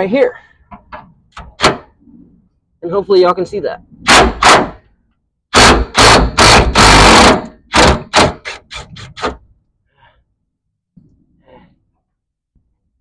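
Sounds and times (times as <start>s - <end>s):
impact wrench hammering: 5.5s - 9.4s.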